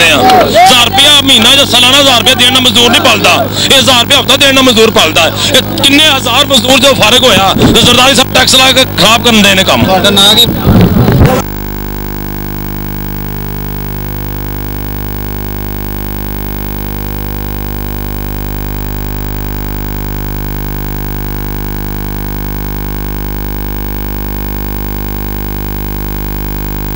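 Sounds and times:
electronic buzz of held tones: 0:10.2 - 0:26.9.

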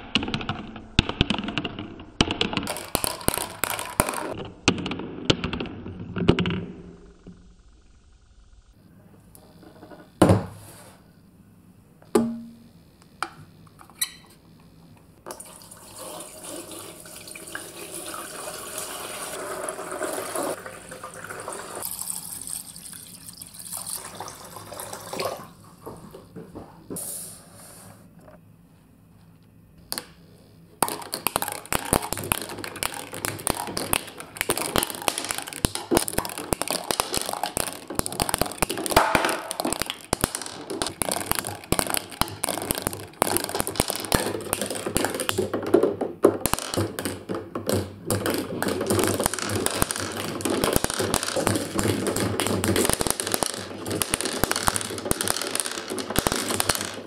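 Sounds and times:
balls clicking and rattling on track: 0:00.0 - 0:07.5, 0:30.8 - 0:57.0
plastic tower knocking on glass: 0:30.8 - 0:57.0.

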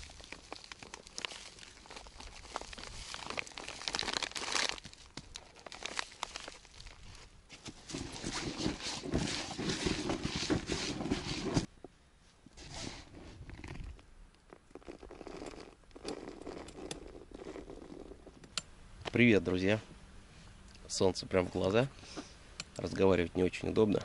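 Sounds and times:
rustling and crinkling handling: 0:00.0 - 0:14.0.

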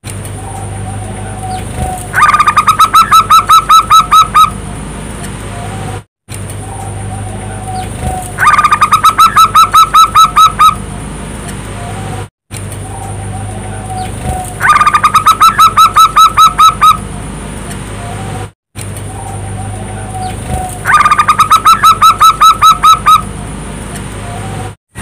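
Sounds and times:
steady low hum: 0:00.1 - 0:02.2, 0:06.3 - 0:08.9, 0:18.8 - 0:20.9
dove cooing: 0:19.2 - 0:23.2.

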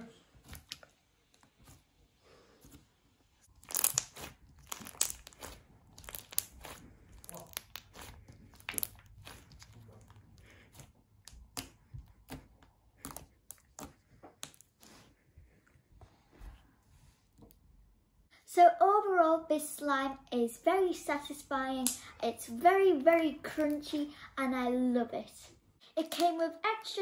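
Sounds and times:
crunchy slime crackling and popping: 0:00.4 - 0:00.9, 0:03.4 - 0:14.8.

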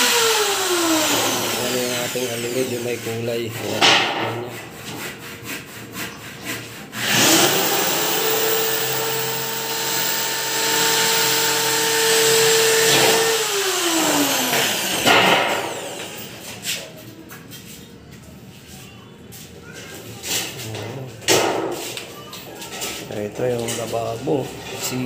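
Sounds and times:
electric drill boring into metal: 0:00.0 - 0:03.3, 0:07.0 - 0:16.4.

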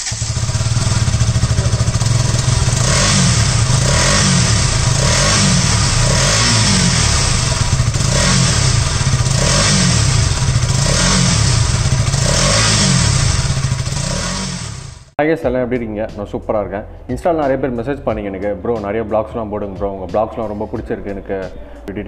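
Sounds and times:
motorcycle engine revving: 0:00.0 - 0:15.2.

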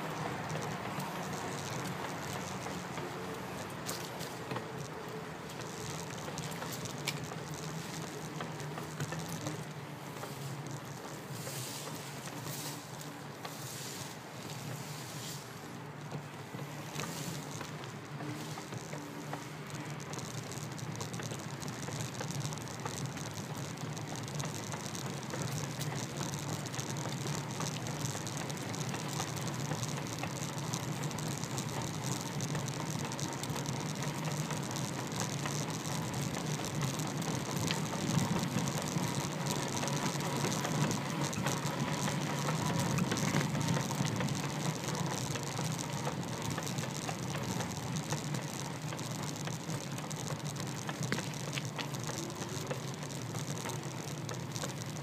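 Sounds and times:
bicycle rattling and ticking: 0:00.0 - 0:55.0
road and wind noise: 0:00.0 - 0:55.0.

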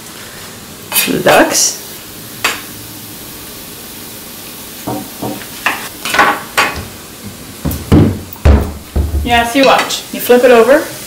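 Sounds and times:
meat sizzling in a frying pan: 0:00.0 - 0:11.0.

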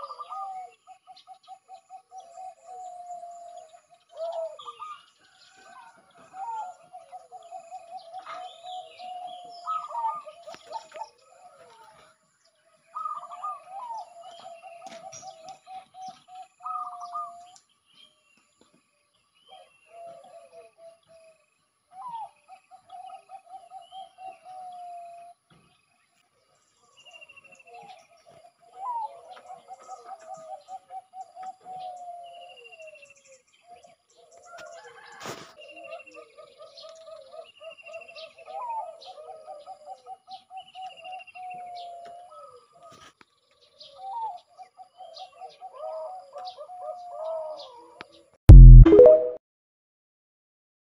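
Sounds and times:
dove cooing: 0:00.0 - 0:05.0, 0:13.0 - 0:17.4, 0:35.6 - 0:40.4, 0:43.9 - 0:48.0.

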